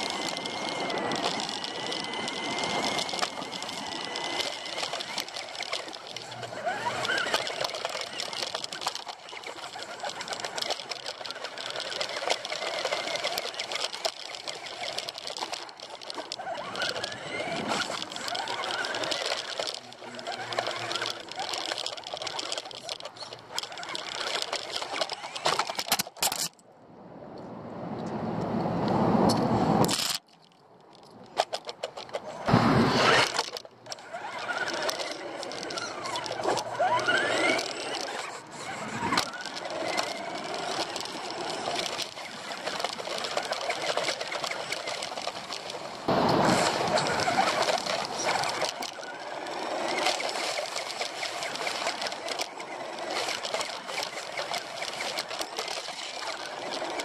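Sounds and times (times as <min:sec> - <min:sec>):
rc car motor whine: 0:00.0 - 0:26.5, 0:31.3 - 0:57.0
rattling drivetrain: 0:00.0 - 0:26.6, 0:29.8 - 0:57.0
tyre noise: 0:00.0 - 0:26.6, 0:29.2 - 0:57.0
loud crash burst: 0:32.5 - 0:33.0.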